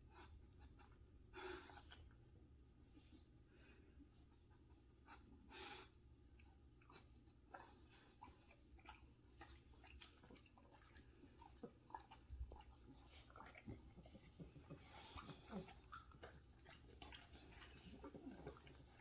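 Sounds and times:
dog sniffing: 0:06.8 - 0:19.0
dogs chewing and crunching: 0:06.8 - 0:19.0.

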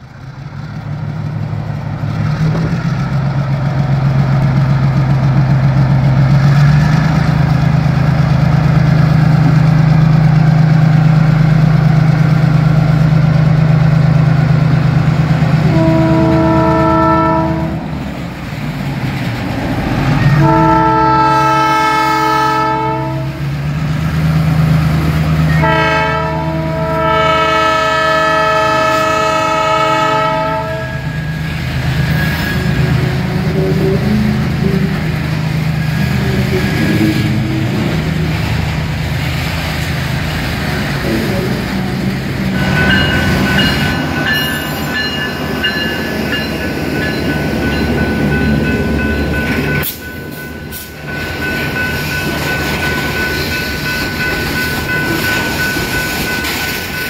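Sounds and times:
diesel locomotive engine drone: 0:00.0 - 0:57.0
locomotive horn blasts: 0:15.6 - 0:17.9, 0:20.2 - 0:23.5, 0:25.5 - 0:31.4.

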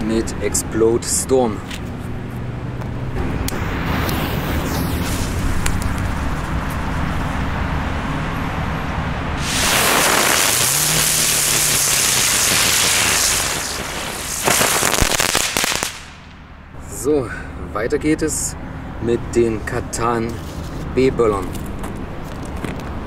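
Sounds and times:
ground spinner firework hissing: 0:03.2 - 0:06.4, 0:09.4 - 0:16.4
sharp pops: 0:09.4 - 0:16.4.

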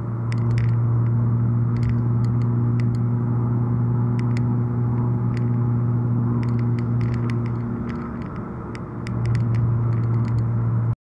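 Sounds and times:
engine and road hum: 0:00.0 - 0:11.0
light clicks: 0:00.3 - 0:00.8, 0:01.8 - 0:03.0, 0:04.2 - 0:05.6, 0:06.4 - 0:10.5.

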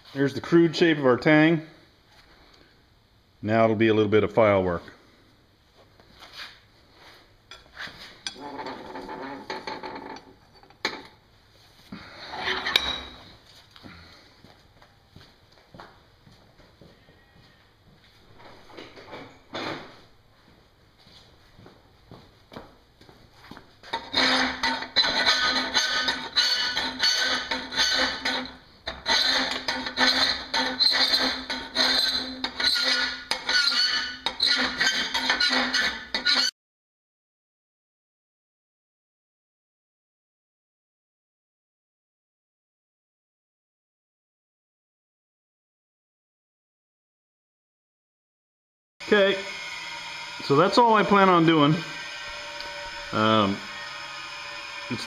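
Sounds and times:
hand file rasping on steel: 0:24.0 - 0:36.5.

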